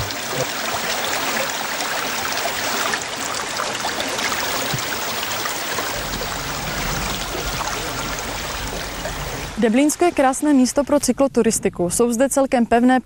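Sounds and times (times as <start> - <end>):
brook babbling over stones: 0.0 - 10.6
low rumble: 5.9 - 10.1.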